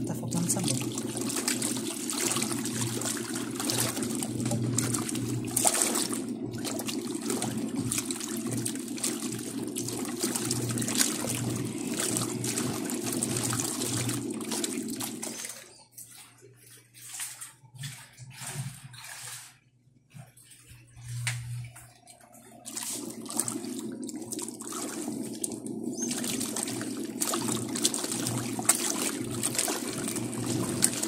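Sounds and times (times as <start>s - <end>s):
faint clicks and drips: 0.0s - 31.0s
washing machine motor hum: 0.0s - 31.0s
water churning and sloshing: 0.0s - 31.0s.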